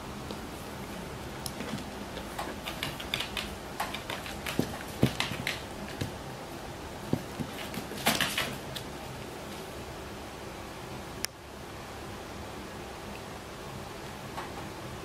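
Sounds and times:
dog claws clicking on floor: 1.4s - 6.2s, 7.1s - 8.9s.

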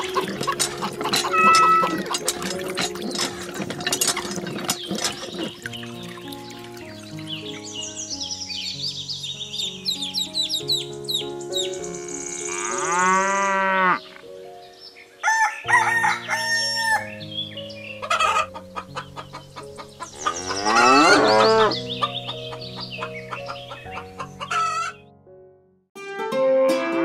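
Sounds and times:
background music: 0.0s - 27.0s
rooster crowing and clucking: 15.2s - 17.2s, 18.0s - 19.4s, 23.4s - 25.0s.

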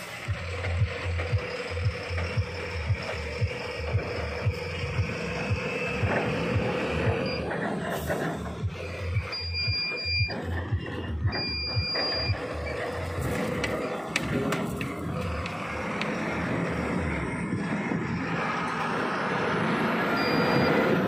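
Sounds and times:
truck engine running in cab: 0.0s - 21.0s
electronic warning beeps: 0.3s - 7.6s, 8.6s - 14.1s, 20.0s - 21.0s.

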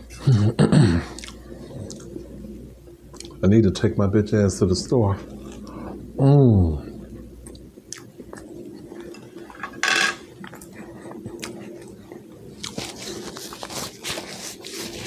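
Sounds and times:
fork clattering on a plate: 9.1s - 10.3s
paper napkin rustling: 12.7s - 15.0s.

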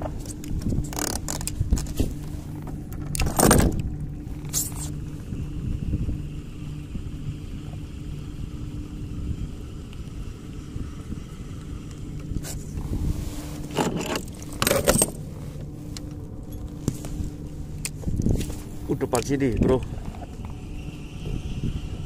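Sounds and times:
steady low hum: 0.0s - 22.0s
metallic rattling and scraping: 12.4s - 18.8s.

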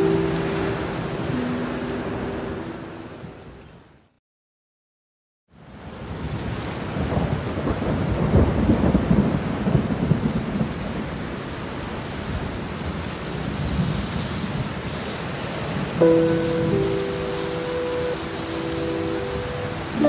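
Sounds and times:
held musical chord: 0.0s - 3.3s, 16.0s - 20.0s
steady rain: 0.0s - 4.1s, 5.5s - 20.0s
thunder rumbling: 6.9s - 11.0s.

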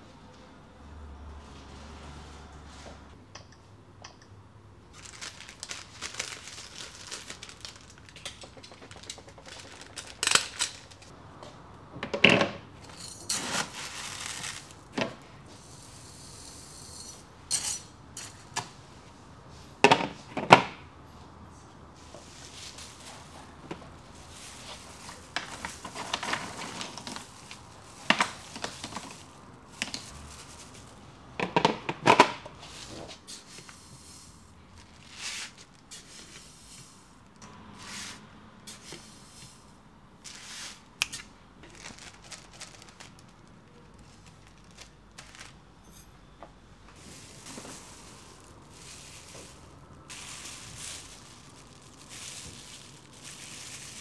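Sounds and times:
objects clicking and knocking: 8.0s - 11.1s
rustling: 12.9s - 16.0s, 22.1s - 31.0s, 32.6s - 37.4s, 41.6s - 46.0s, 46.9s - 54.0s.

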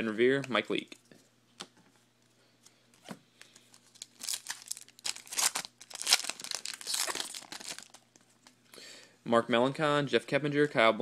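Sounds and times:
foil wrapper crinkling and tearing: 3.5s - 8.4s.

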